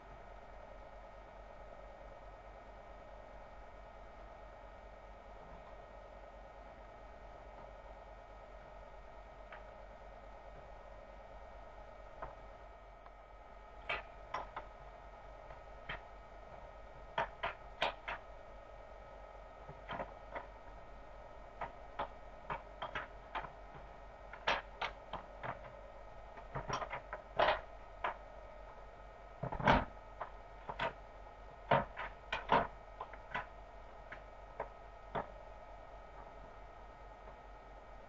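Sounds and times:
steady hum: 0.0s - 38.0s.

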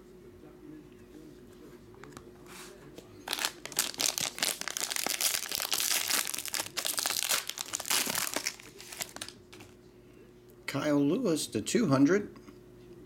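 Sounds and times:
foil wrapper crinkling and tearing: 3.2s - 9.8s.

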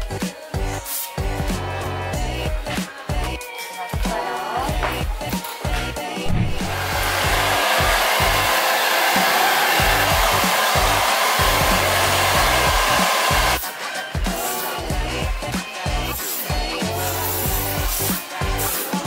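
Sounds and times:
hair dryer blowing: 6.2s - 15.1s.

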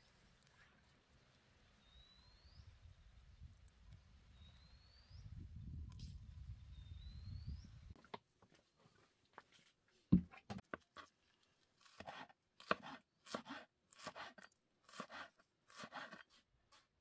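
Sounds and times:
knife chopping on cutting board: 12.0s - 16.2s.

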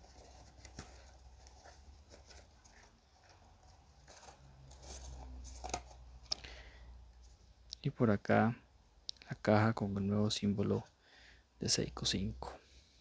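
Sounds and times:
cardboard and paper rustling: 0.0s - 6.3s.

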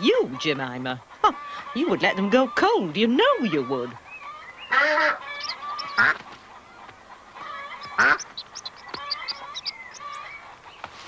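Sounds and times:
high chirps and peeps: 3.3s - 11.0s
duck quacking: 4.7s - 10.6s.

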